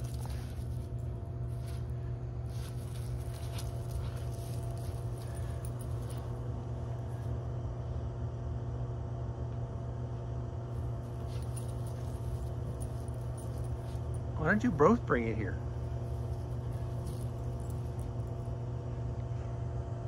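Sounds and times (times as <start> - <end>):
rustling leaves and clinking: 0.0 - 1.9, 2.5 - 6.4, 11.0 - 14.8, 15.7 - 18.6
machine hum with tones: 0.0 - 20.0.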